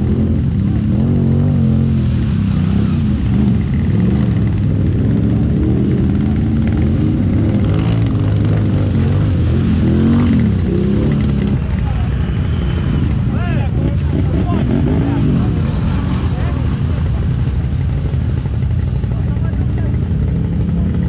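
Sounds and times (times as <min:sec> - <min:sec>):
quad bike engine revving: 0:00.0 - 0:21.0.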